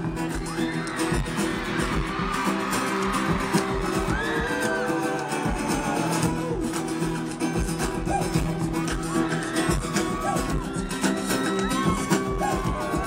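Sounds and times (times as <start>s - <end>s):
acoustic guitar strumming: 0.0s - 13.0s
steady percussive beat: 0.0s - 13.0s.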